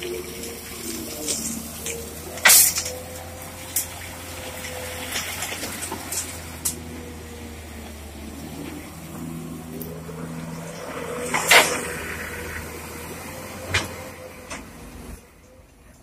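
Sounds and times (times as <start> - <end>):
steel bucket clanking on gravel: 0.0 - 6.8
excavator diesel engine droning: 0.0 - 16.0.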